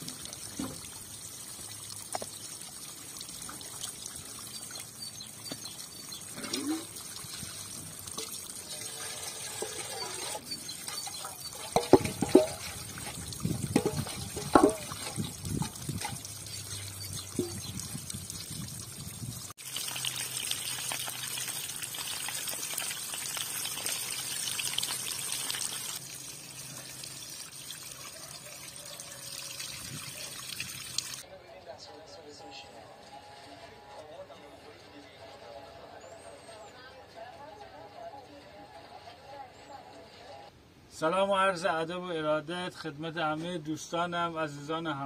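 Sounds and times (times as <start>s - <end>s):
water poured splashing: 0.0s - 31.2s
water trickling over stones: 0.0s - 31.2s.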